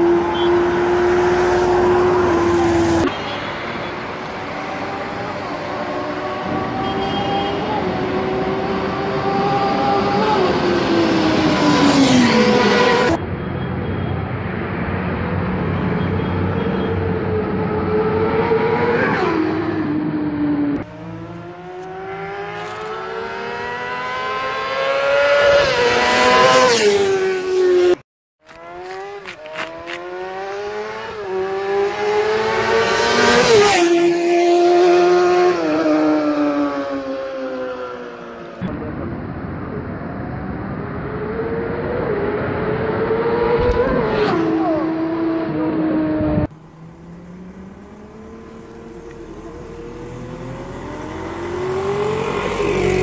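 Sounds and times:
motorcycles revving past: 0:17.9 - 0:38.3, 0:43.4 - 0:53.0.

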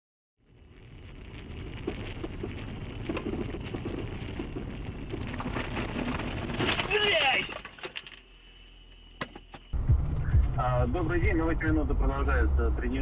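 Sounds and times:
vehicle driving rumble: 0:00.4 - 0:07.2.

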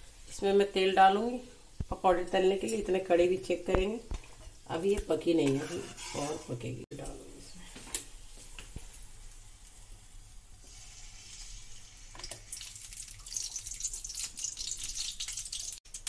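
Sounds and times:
oil pouring into a pan: 0:10.6 - 0:16.0.

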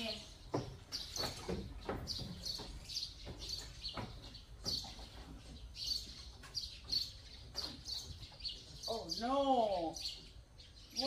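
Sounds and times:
small birds chirping: 0:00.0 - 0:11.0
footfalls on wooden stairs: 0:00.4 - 0:06.2.

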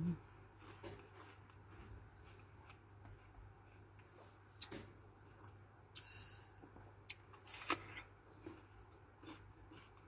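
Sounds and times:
crisp apple bite: 0:07.1 - 0:08.1.

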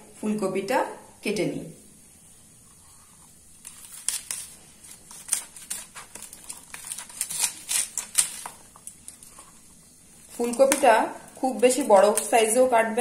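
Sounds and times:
cauliflower crackling and snapping: 0:03.6 - 0:12.4.

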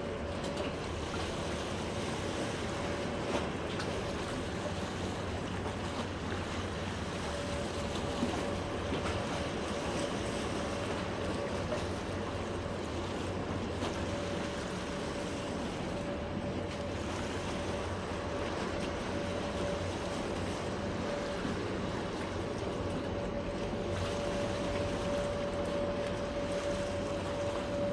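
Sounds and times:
boat motor humming: 0:00.0 - 0:27.9
water churning beside hull: 0:00.0 - 0:27.9.

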